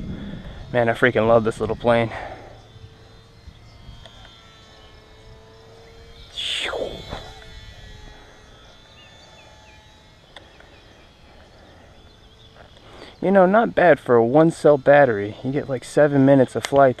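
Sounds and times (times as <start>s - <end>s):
electric model plane humming: 0.0s - 17.0s
loud cry sweeping down: 6.3s - 7.3s.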